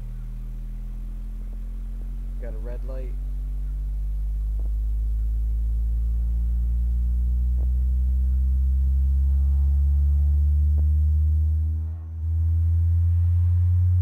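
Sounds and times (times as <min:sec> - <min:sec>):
subwoofer bass sweep: 0:00.0 - 0:14.0.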